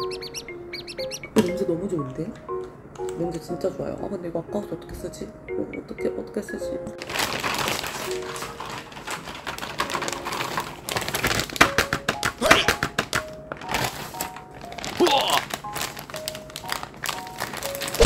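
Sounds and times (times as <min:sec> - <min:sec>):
light background music: 0:00.0 - 0:18.0
plastic bag crinkling: 0:07.0 - 0:18.0.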